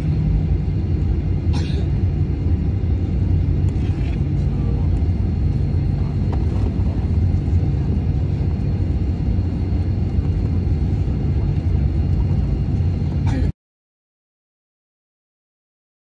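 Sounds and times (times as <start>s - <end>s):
airplane cabin rumble and hum: 0.0s - 13.6s.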